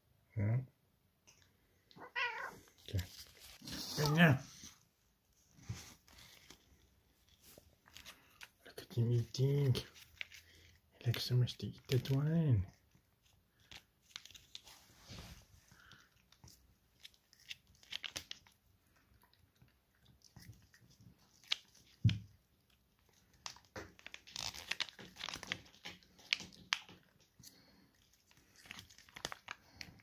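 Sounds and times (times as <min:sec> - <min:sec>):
cat licking and chewing: 0:11.8 - 0:14.8, 0:15.6 - 0:30.0
foil pouch crinkling: 0:13.5 - 0:14.8, 0:15.8 - 0:18.6, 0:23.0 - 0:30.0.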